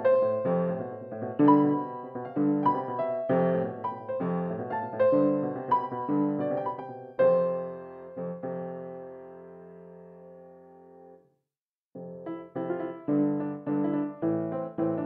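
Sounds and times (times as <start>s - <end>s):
solo piano music: 0.0s - 11.2s, 12.0s - 15.0s.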